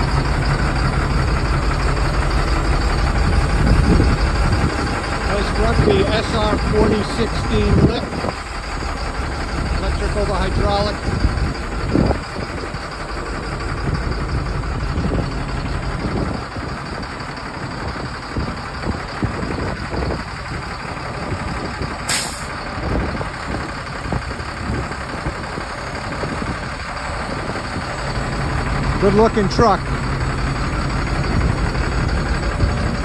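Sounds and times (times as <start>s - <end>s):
diesel engine idling: 0.0s - 33.0s
truck hydraulic hoist running: 0.0s - 33.0s
sharp hiss of air: 22.1s - 22.6s.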